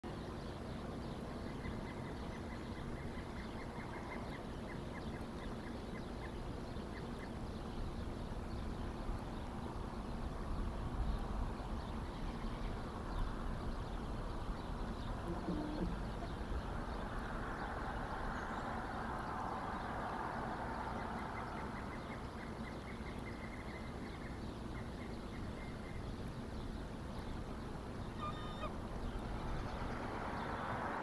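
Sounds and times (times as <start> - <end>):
low outdoor rumble: 0.0 - 31.0
bird calling: 0.9 - 8.8, 13.7 - 17.3, 20.8 - 31.0.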